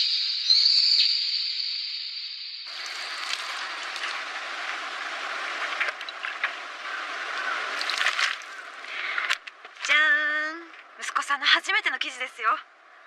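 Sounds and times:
outdoor background noise: 0.0 - 13.0
rustling: 2.7 - 11.0.

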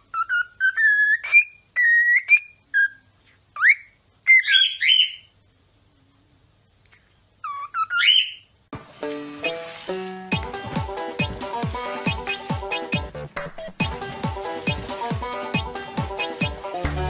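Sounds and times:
cockatiel whistling: 0.1 - 3.0, 3.6 - 5.3, 7.4 - 8.5.

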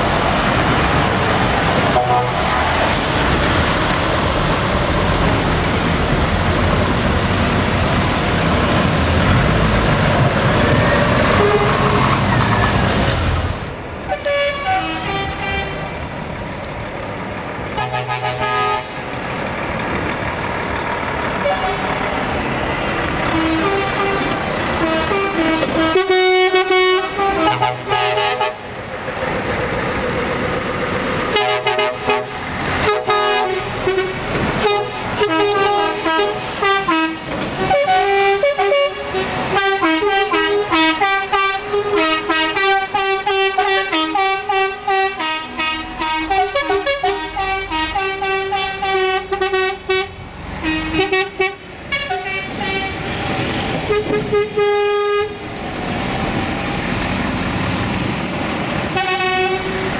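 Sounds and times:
diesel engines running: 0.0 - 59.9
truck air horns blasting: 1.8 - 3.0, 10.8 - 12.3, 14.1 - 16.0, 17.7 - 19.1, 21.4 - 22.0, 23.2 - 28.8, 31.3 - 53.1, 53.8 - 55.5, 58.9 - 59.9.

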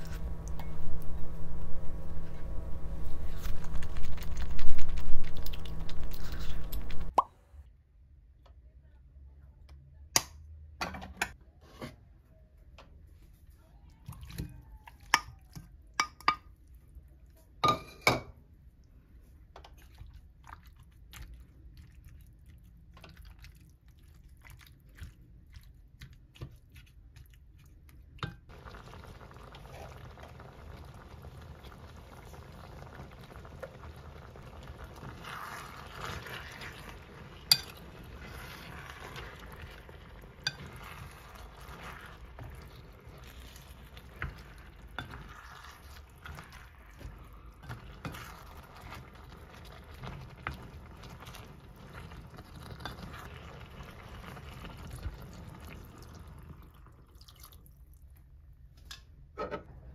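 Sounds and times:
food sizzling in a pan: 0.0 - 7.2, 28.5 - 57.0.

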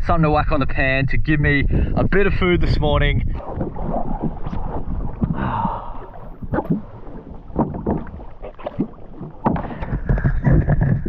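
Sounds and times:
water slapping against a boat: 1.7 - 11.0
hard breathing: 5.2 - 6.5, 9.6 - 11.0
knocks on a boat: 9.4 - 11.0.

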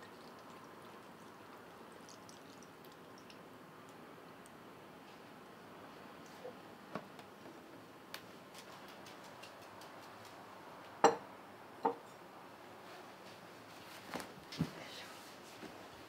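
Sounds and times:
tableware clinking on wooden table: 11.0 - 12.0.

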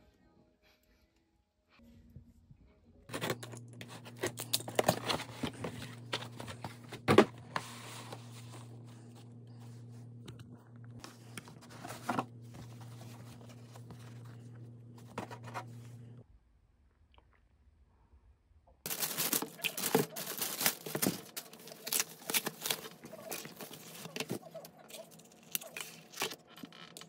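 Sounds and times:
steady low hum: 1.9 - 16.3
packaging rustling and crinkling: 3.1 - 9.2, 18.9 - 27.0.

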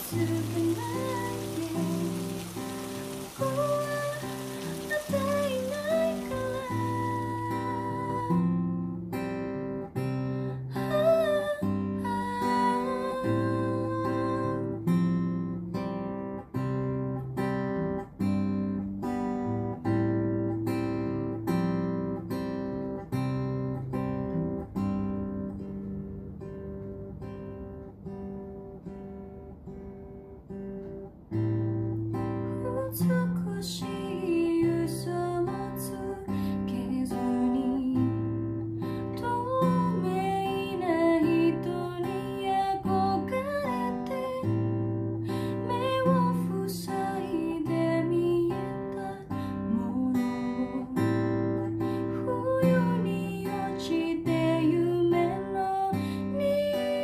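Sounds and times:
person singing: 0.0 - 8.6, 10.8 - 14.8
acoustic guitar picking: 0.0 - 57.0.

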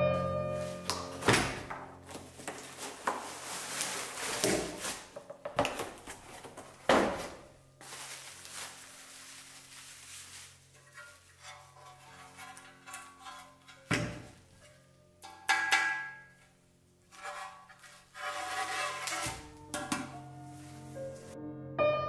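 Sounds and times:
soft piano music: 0.0 - 4.3, 19.2 - 22.0
cardboard box and bubble wrap rustling: 0.6 - 14.6, 17.8 - 21.4.

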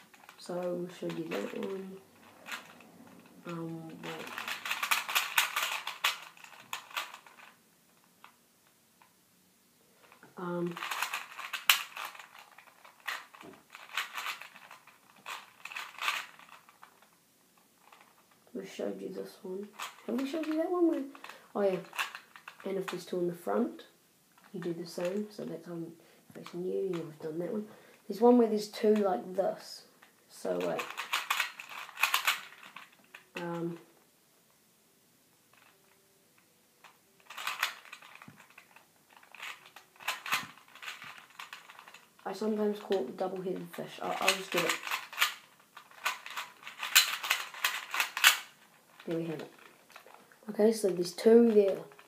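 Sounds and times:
puzzle cube plastic clicking: 0.0 - 8.4, 10.0 - 17.2, 19.6 - 23.1, 30.0 - 33.8, 35.6 - 52.0.

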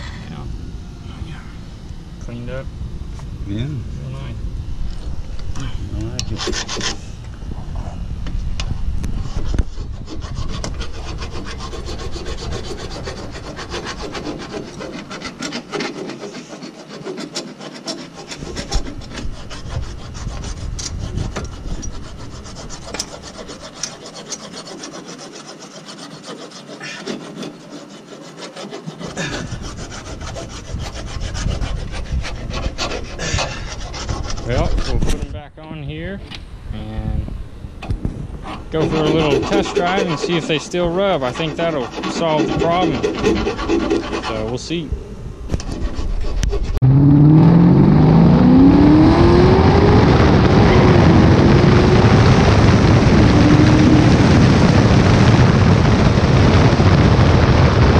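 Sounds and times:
hand file scraping metal: 6.0 - 7.1, 9.1 - 35.3, 38.4 - 44.9, 45.5 - 46.8.

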